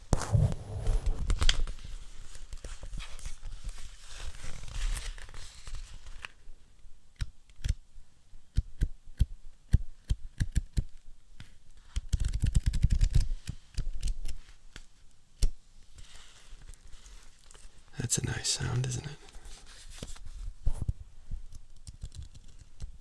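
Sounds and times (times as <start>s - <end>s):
scratchy rustle: 0.0s - 6.4s, 15.9s - 17.8s, 18.8s - 20.9s.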